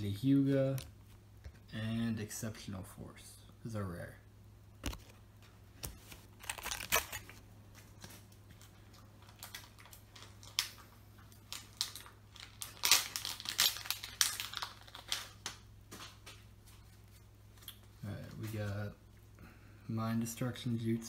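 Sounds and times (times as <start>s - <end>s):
foil wrapper crinkling and tearing: 6.3s - 7.4s, 8.6s - 16.4s.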